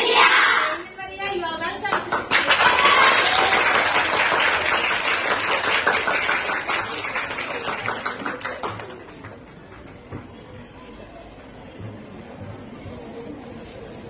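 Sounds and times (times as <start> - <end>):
students applauding: 1.9 - 10.0.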